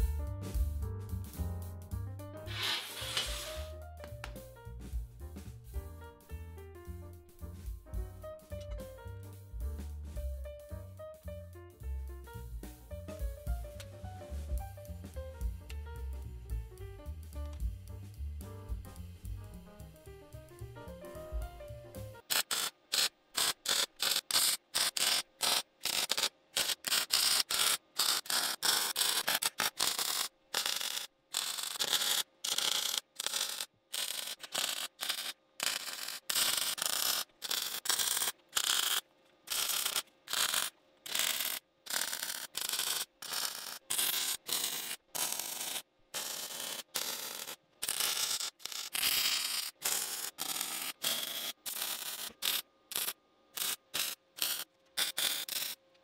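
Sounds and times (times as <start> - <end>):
welding arc crackling and hissing: 2.5 - 3.9, 13.6 - 55.8.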